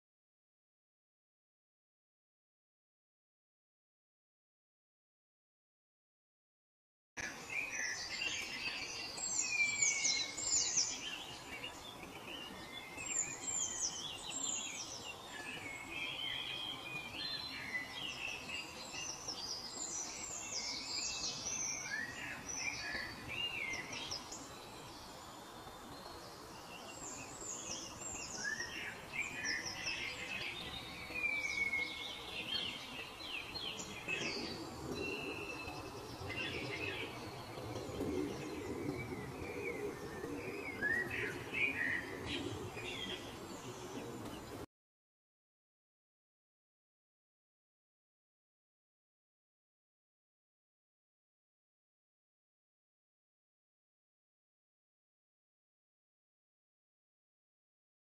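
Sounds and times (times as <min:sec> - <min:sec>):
steady background hiss: 0:07.2 - 0:44.6
songbirds chirping: 0:07.2 - 0:44.7.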